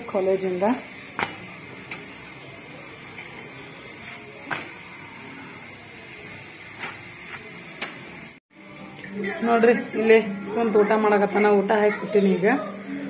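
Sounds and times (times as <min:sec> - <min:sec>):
flatbread hissing on a griddle: 0:00.0 - 0:08.4.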